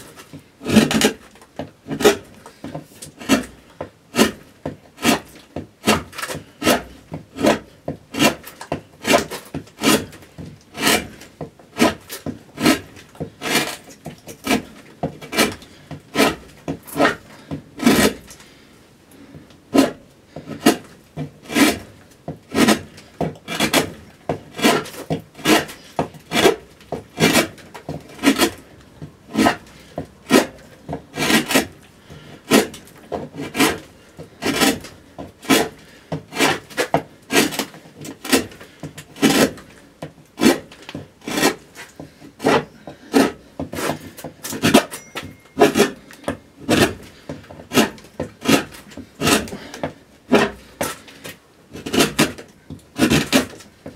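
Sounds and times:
hand gouge scraping wood: 0:00.0 - 0:18.6, 0:19.2 - 0:53.9.

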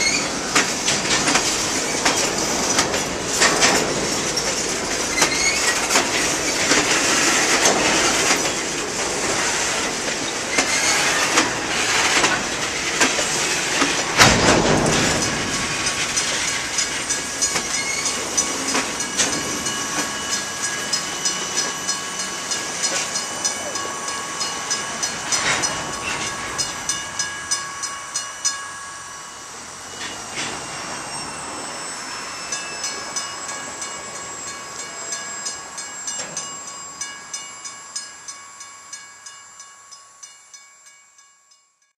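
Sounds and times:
high wheel squealing: 0:00.0 - 0:27.8, 0:29.3 - 0:37.2
train wheels clacking over rail joints: 0:00.0 - 0:28.6, 0:29.9 - 0:31.3.

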